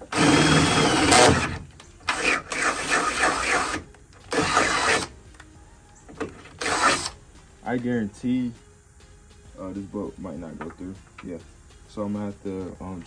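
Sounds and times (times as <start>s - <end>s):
cordless drill boring into sheet steel: 0.0s - 5.1s, 6.6s - 7.2s.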